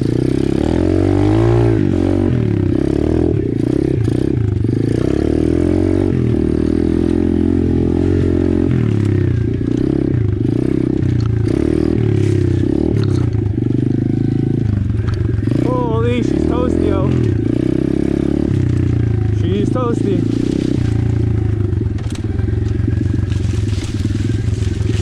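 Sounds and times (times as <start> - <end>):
dirt bike engine revving: 0.0 - 25.0
scraping and clattering over brush: 20.2 - 21.3, 22.0 - 25.0.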